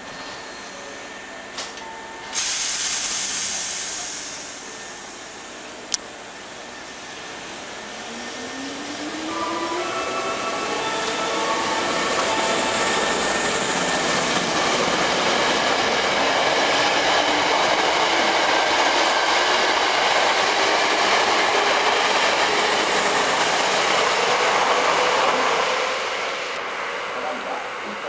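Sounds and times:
traction motors whining: 0:04.5 - 0:26.6.

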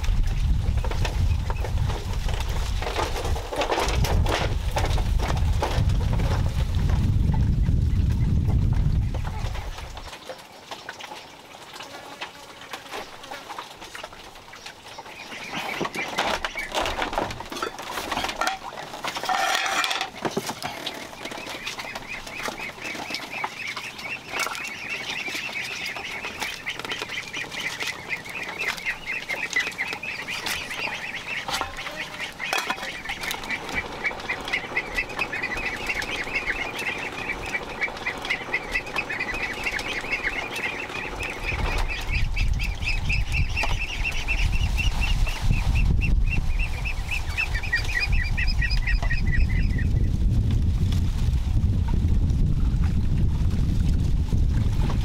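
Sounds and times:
ducks calling: 0:09.0 - 0:50.0.

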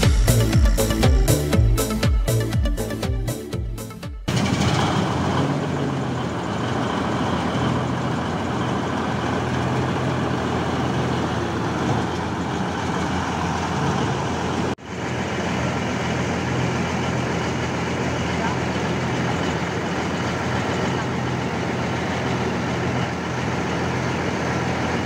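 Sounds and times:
heavy machinery running: 0:00.0 - 0:25.0.

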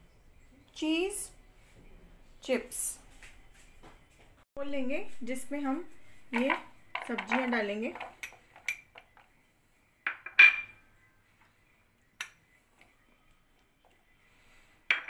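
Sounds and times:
metal spoon clinking on glass bowls: 0:06.4 - 0:09.2, 0:10.1 - 0:10.8.

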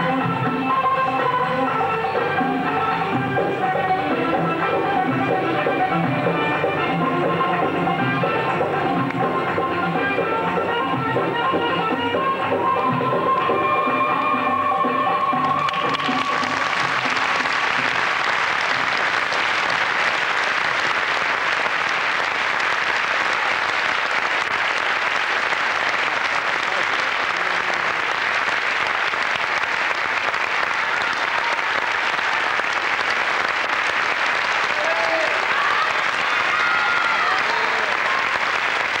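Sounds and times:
dance music: 0:00.0 - 0:19.2
audience applauding: 0:15.2 - 0:39.0.

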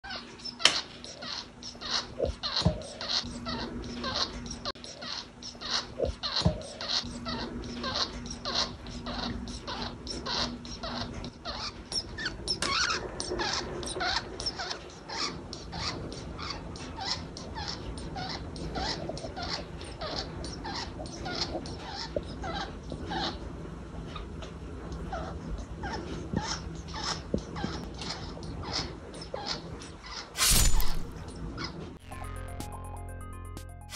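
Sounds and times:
parakeet chirping: 0:00.1 - 0:23.4.

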